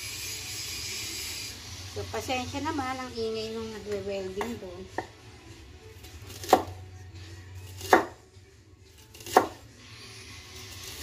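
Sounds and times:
knife slicing onion: 0:05.9 - 0:11.0.

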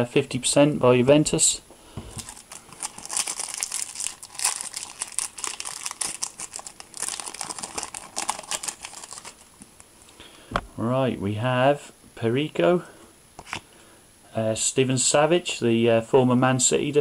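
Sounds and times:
foil wrapper crinkling and tearing: 0:02.2 - 0:09.9.

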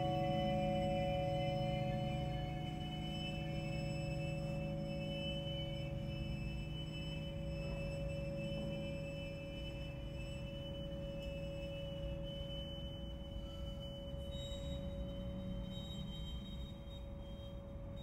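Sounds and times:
bells ringing: 0:00.0 - 0:06.0.

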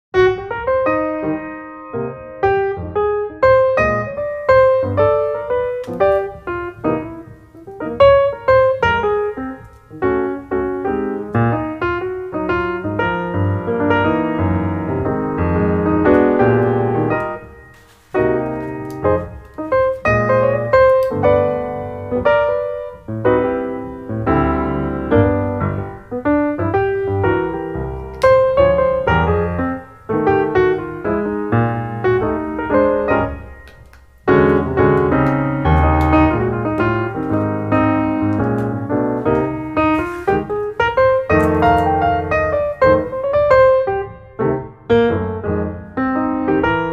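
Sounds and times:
solo piano melody: 0:00.1 - 0:46.9.

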